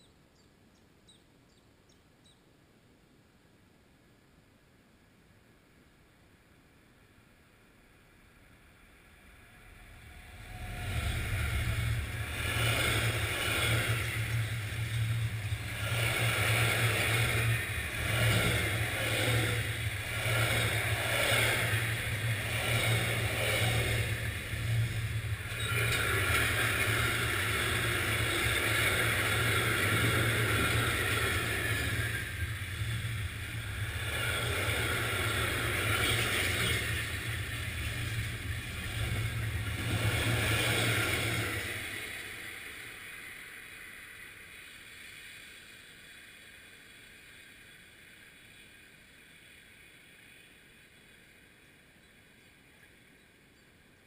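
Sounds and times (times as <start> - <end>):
freight train rumbling and clattering: 8.7 - 47.8.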